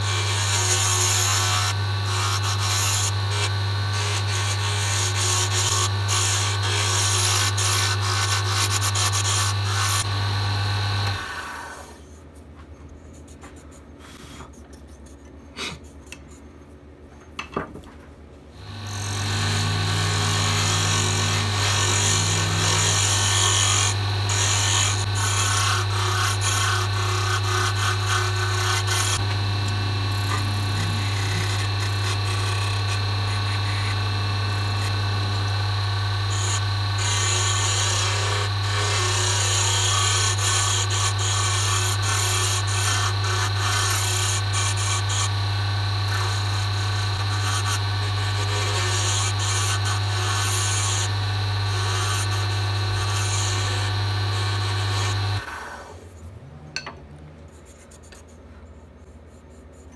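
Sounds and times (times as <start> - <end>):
lathe motor humming: 0.0 - 11.8, 18.6 - 55.6
hand tool scraping wood: 18.6 - 55.5.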